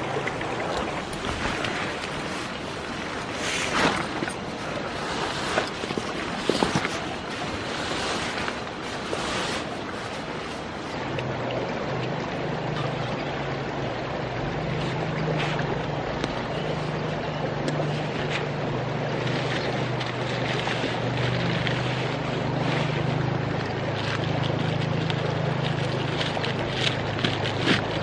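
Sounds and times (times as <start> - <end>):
river rushing: 0.0 - 28.0
tent fabric rustling: 1.1 - 10.9
deep steady rumble: 10.3 - 28.0.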